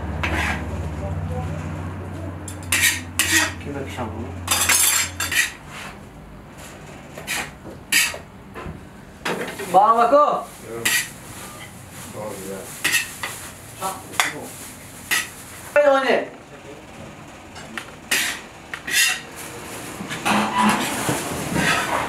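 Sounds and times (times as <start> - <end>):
metal skimmer scraping a pot: 4.8 - 5.6, 18.1 - 19.3, 20.2 - 22.0.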